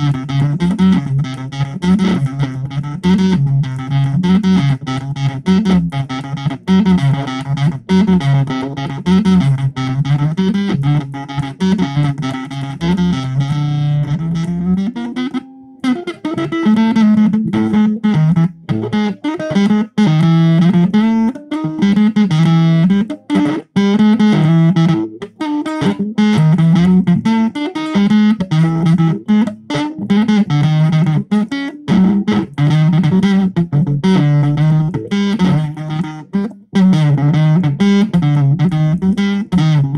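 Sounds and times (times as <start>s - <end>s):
distorted electric guitar riff: 0.0s - 39.9s.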